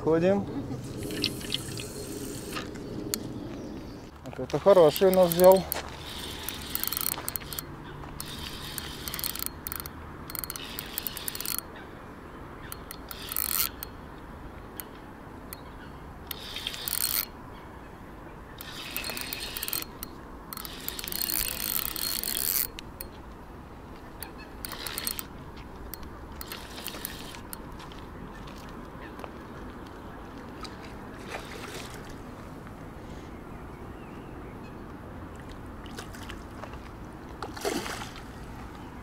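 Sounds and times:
fishing reel drag ratcheting: 0:04.8 - 0:11.7, 0:12.6 - 0:14.0, 0:16.3 - 0:17.4, 0:18.6 - 0:23.1, 0:24.2 - 0:25.3, 0:25.9 - 0:27.6.

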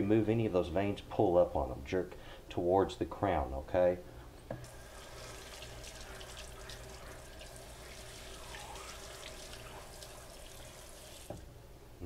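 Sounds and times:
tap water running: 0:04.5 - 0:11.5
small water splashes: 0:04.7 - 0:11.4.

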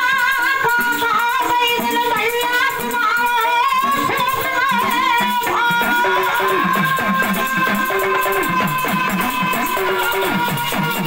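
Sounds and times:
jingling percussion beat: 0:00.0 - 0:11.0
man singing into a microphone: 0:00.0 - 0:11.0
instrumental drone: 0:04.8 - 0:11.0.

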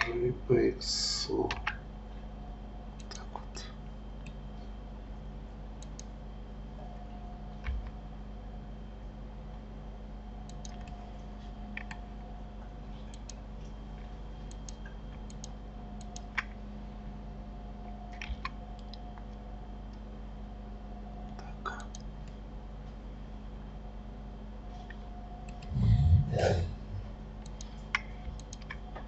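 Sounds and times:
low electrical hum: 0:00.0 - 0:29.0
computer mouse clicks: 0:03.0 - 0:03.3, 0:05.8 - 0:06.2, 0:10.4 - 0:11.0, 0:11.7 - 0:12.0, 0:13.0 - 0:13.4, 0:14.4 - 0:16.6, 0:18.1 - 0:20.0, 0:21.7 - 0:22.4, 0:24.9 - 0:26.4, 0:27.4 - 0:28.8.

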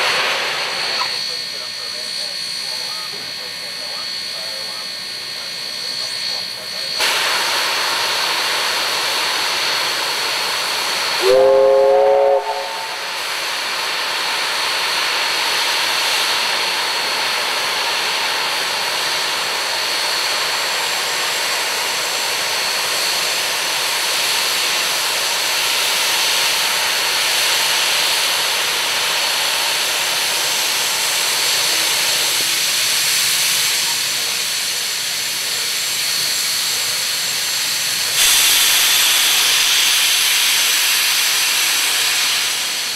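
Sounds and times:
steam hissing: 0:00.0 - 0:42.9
steam whistle blast: 0:11.2 - 0:13.2.

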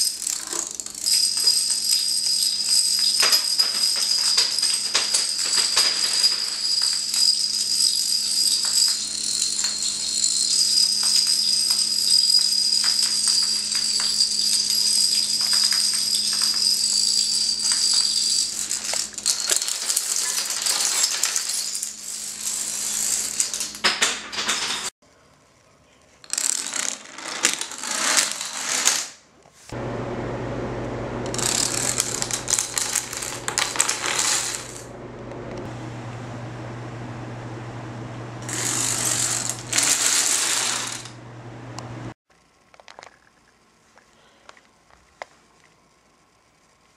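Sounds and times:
dominoes clattering: 0:00.0 - 0:24.9, 0:26.2 - 0:29.2, 0:31.3 - 0:34.9, 0:38.5 - 0:41.1, 0:42.7 - 0:43.6
low hum: 0:29.8 - 0:42.2.

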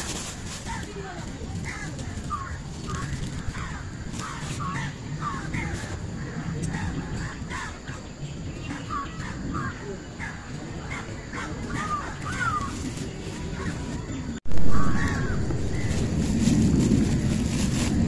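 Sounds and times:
close rustling: 0:00.0 - 0:04.9, 0:11.7 - 0:14.4, 0:15.0 - 0:18.0
low outdoor rumble: 0:00.0 - 0:18.0.

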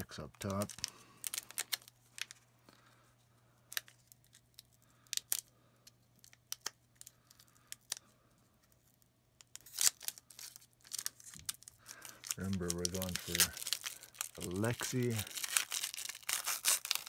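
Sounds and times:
foil wrapper crinkling: 0:00.0 - 0:02.9, 0:03.7 - 0:08.1, 0:08.7 - 0:17.0.

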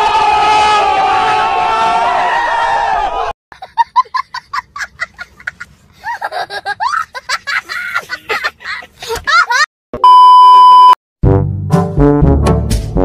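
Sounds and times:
crowd of young men shouting: 0:00.0 - 0:03.3
boy laughing: 0:03.5 - 0:09.7.

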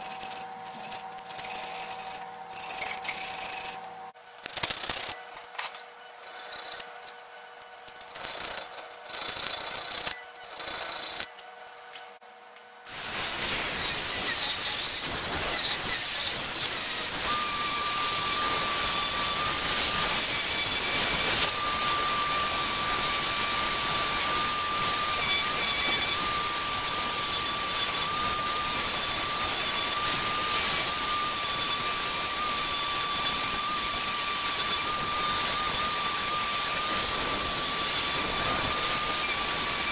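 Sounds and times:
rotary tool motor whine: 0:00.0 - 0:05.2, 0:06.1 - 0:07.0, 0:07.9 - 0:11.4, 0:12.9 - 0:39.9.

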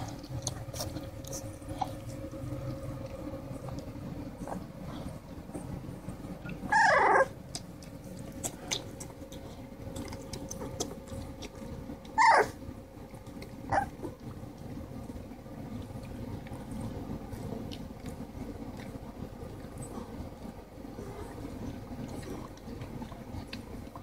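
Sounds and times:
puppies squealing: 0:06.6 - 0:07.3, 0:12.2 - 0:12.6.

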